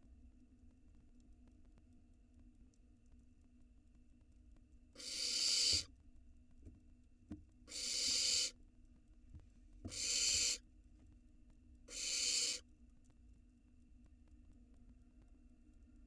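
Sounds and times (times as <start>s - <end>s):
owl chicks hissing calls: 5.0s - 5.9s, 7.7s - 8.6s, 9.9s - 10.6s, 11.9s - 12.6s.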